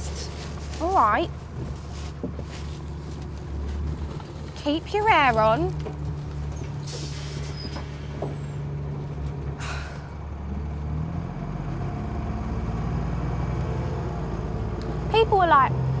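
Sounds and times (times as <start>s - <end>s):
bus engine running: 0.0s - 16.0s
air brake hisses: 6.8s - 8.2s, 9.6s - 10.2s.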